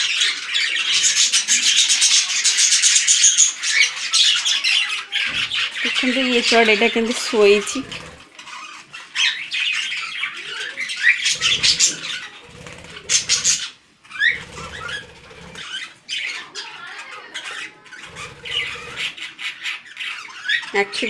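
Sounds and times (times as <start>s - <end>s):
budgerigars chirping: 0.0s - 21.0s
wing flapping: 11.3s - 15.9s.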